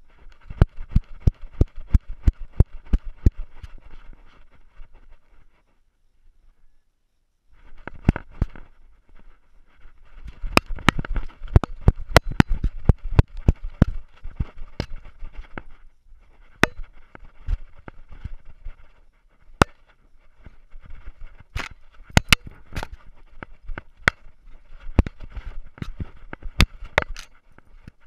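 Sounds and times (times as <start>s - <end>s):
scratchy rustling: 0.0s - 5.8s, 7.5s - 28.0s
clicks and knocks against camera case: 21.5s - 24.3s, 24.9s - 28.0s.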